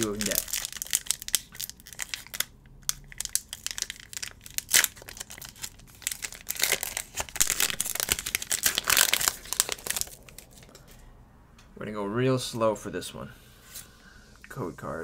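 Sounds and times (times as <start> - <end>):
foil pack tearing open: 0.0 - 2.5, 3.1 - 10.6
foil wrapper crinkling: 0.0 - 10.7.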